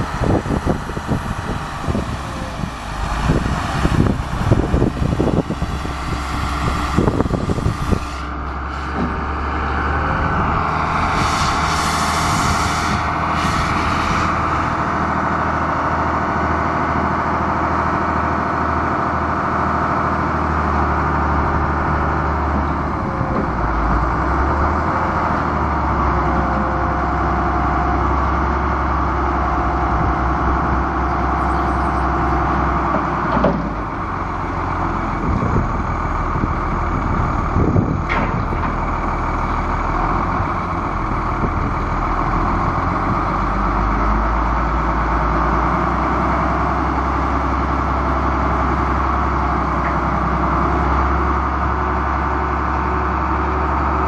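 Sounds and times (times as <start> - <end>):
diesel engine running: 0.0 - 54.0
short clunks: 32.8 - 33.9, 38.0 - 38.8.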